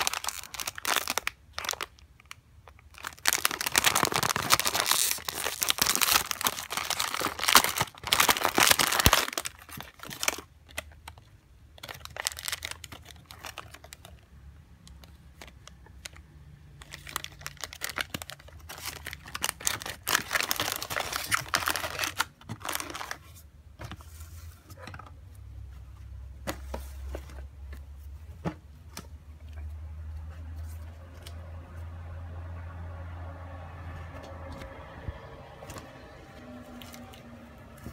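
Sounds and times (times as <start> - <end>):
plastic packaging tearing and crinkling: 0.0 - 11.2, 11.8 - 14.2, 16.8 - 23.3.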